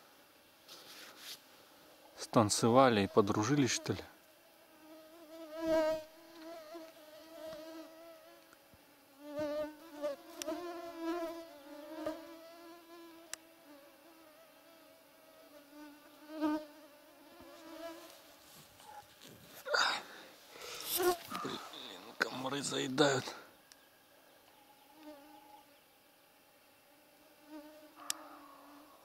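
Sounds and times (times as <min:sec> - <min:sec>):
mosquitoes whining: 0:24.3 - 0:25.9, 0:27.0 - 0:29.0.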